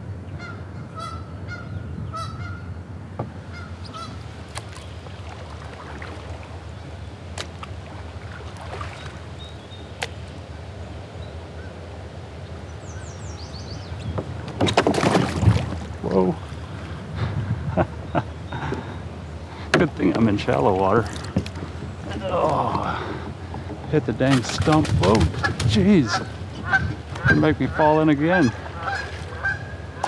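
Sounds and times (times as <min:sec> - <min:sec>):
rumble of moving water: 0:00.0 - 0:30.0
wind: 0:00.0 - 0:30.0
geese honking: 0:03.5 - 0:04.2, 0:25.3 - 0:30.0.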